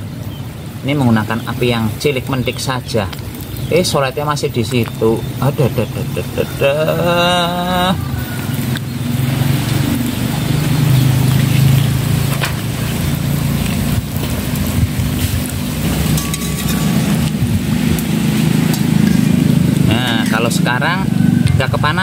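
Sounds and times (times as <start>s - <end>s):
dough sizzling in hot oil: 1.1s - 21.0s
steady low rumble: 11.8s - 21.8s.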